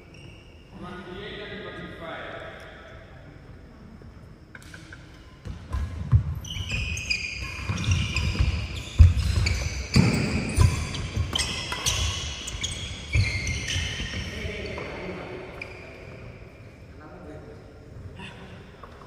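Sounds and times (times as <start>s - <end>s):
shoes squeaking on court floor: 0.0s - 0.7s, 5.2s - 16.5s.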